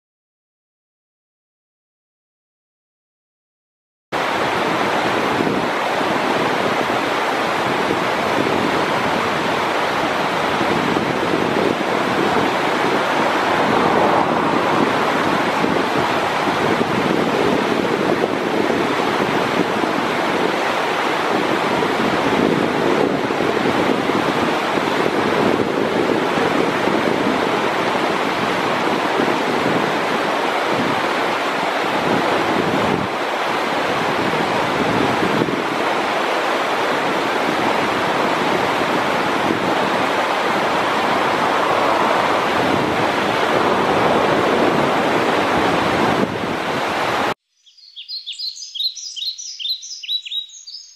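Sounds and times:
loud steady rushing noise: 0:04.2 - 0:47.4
small bird chirping: 0:47.5 - 0:50.9.

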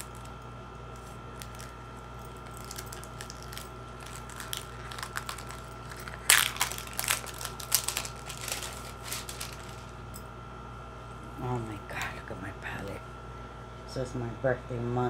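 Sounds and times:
plastic shrink wrap crinkling: 0:00.0 - 0:10.0.

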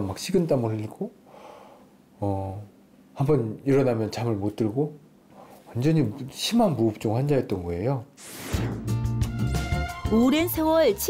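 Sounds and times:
short whoosh: 0:08.2 - 0:09.0
background music: 0:08.2 - 0:11.0.

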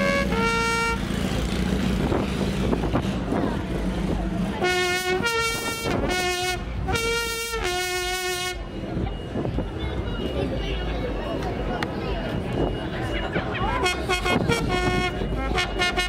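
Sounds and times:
hose blown like a horn: 0:00.0 - 0:01.2, 0:04.6 - 0:08.7, 0:13.8 - 0:16.0.

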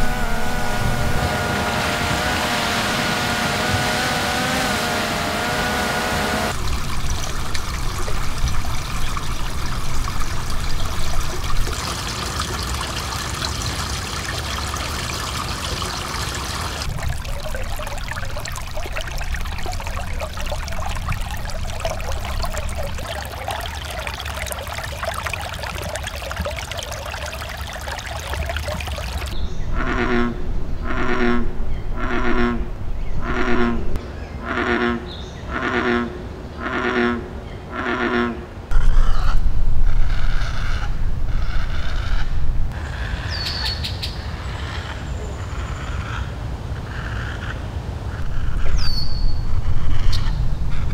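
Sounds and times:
stream trickling over rocks: 0:00.0 - 0:29.4
duck quacks: 0:29.8 - 0:32.6, 0:34.4 - 0:38.4.

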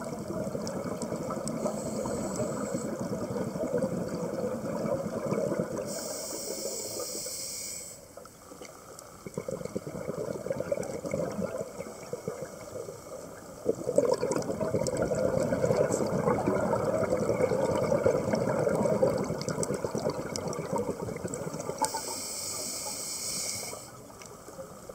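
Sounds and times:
exhaled bubbles rushing: 0:00.0 - 0:06.0, 0:09.2 - 0:21.9
hiss of inhalation through regulator: 0:01.6 - 0:03.0, 0:05.8 - 0:08.1, 0:21.8 - 0:24.0.

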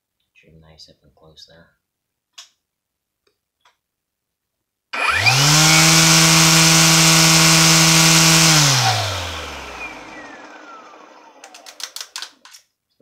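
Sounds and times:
string trimmer motor whining: 0:05.0 - 0:12.2.

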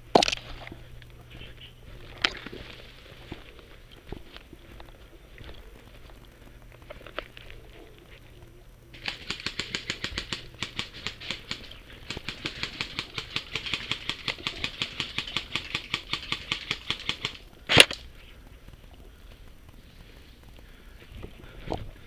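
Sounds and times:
airsoft guns firing full-auto: 0:08.9 - 0:18.0.

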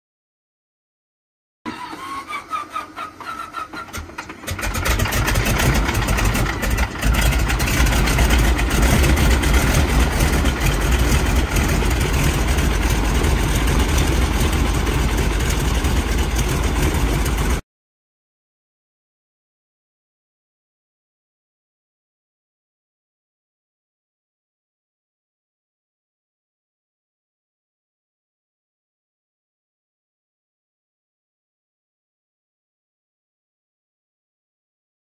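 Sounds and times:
propeller aircraft engine starting: 0:01.7 - 0:17.6.

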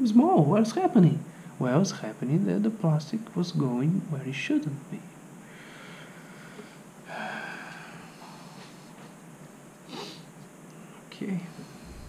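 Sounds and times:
man breathing through nose: 0:05.4 - 0:09.0.

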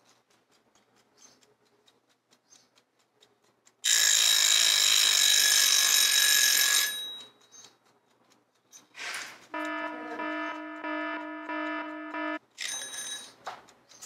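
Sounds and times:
timer dial clicking: 0:06.5 - 0:12.5
timer bell ringing: 0:09.5 - 0:13.4.

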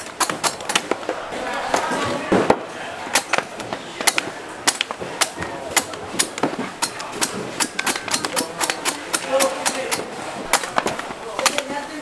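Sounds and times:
knife chopping coconut: 0:05.8 - 0:10.8.

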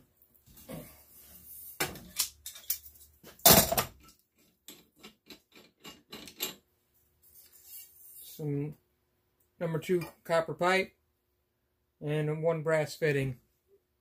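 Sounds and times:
wrench clanking and scraping on pipe: 0:04.0 - 0:06.7.

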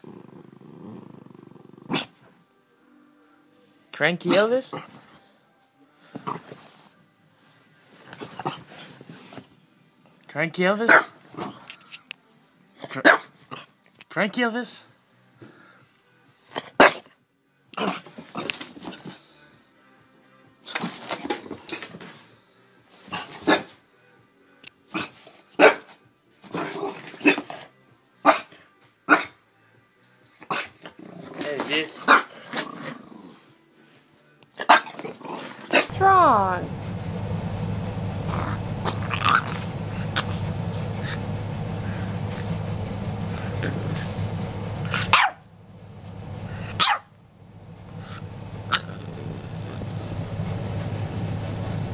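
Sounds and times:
puppy growling: 0:00.0 - 0:02.3, 0:30.4 - 0:33.6, 0:34.6 - 0:36.0, 0:38.2 - 0:45.5, 0:47.9 - 0:50.4
dog barking: 0:10.9 - 0:11.2, 0:12.9 - 0:13.4, 0:16.6 - 0:17.1, 0:23.1 - 0:23.8, 0:24.9 - 0:25.9, 0:28.2 - 0:28.5, 0:29.1 - 0:29.4, 0:30.5 - 0:30.8, 0:32.0 - 0:32.4, 0:34.6 - 0:35.0, 0:44.9 - 0:45.5, 0:46.7 - 0:47.1.

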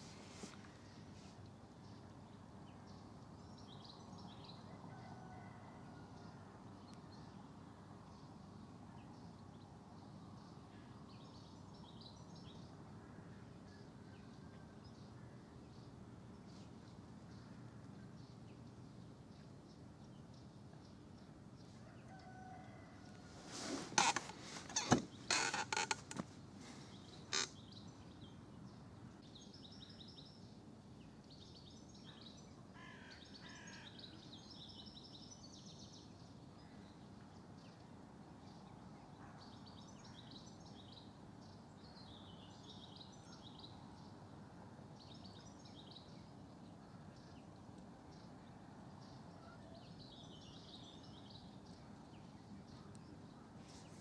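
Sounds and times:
loud knocks and rustles: 0:23.6 - 0:26.3.

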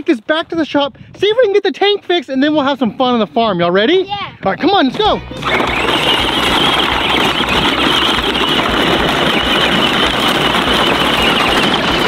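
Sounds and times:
plastic wheels rolling over gravel: 0:04.7 - 0:12.0.

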